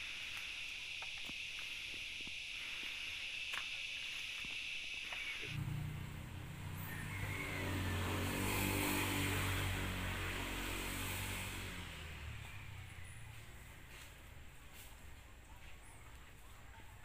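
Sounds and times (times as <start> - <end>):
vehicle engine passing by: 5.6 - 14.9.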